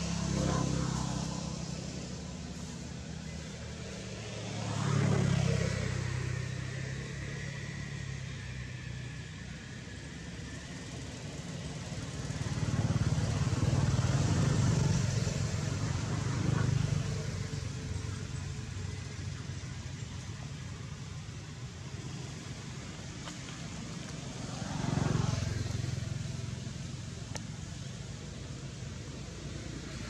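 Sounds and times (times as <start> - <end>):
vehicle engines passing: 0.0 - 30.0.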